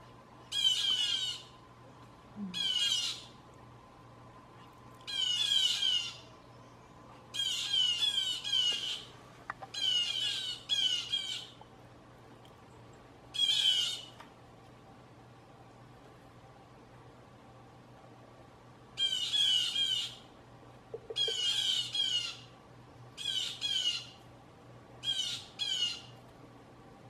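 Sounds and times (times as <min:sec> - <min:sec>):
woodpecker churr calls: 0:00.5 - 0:01.5, 0:02.6 - 0:03.3, 0:05.1 - 0:06.2, 0:07.3 - 0:11.6, 0:13.4 - 0:14.1, 0:19.0 - 0:20.2, 0:20.9 - 0:22.5, 0:23.2 - 0:24.2, 0:25.0 - 0:26.1.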